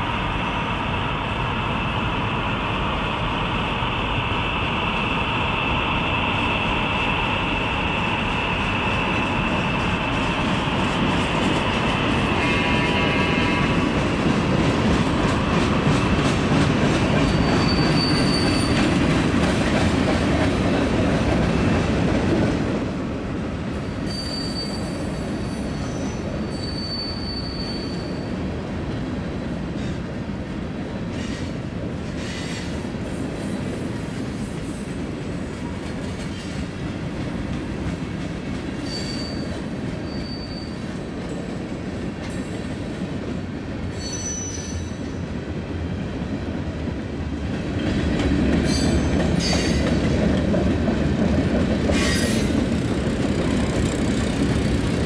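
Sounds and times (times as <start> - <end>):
high wheel squeals: 17.2 - 18.9, 23.8 - 28.4, 38.8 - 40.9, 43.9 - 45.1.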